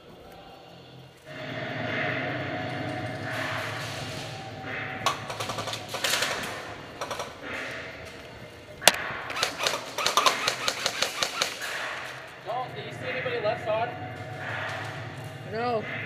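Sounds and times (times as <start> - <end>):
airsoft guns firing: 5.0 - 8.1, 8.7 - 12.4.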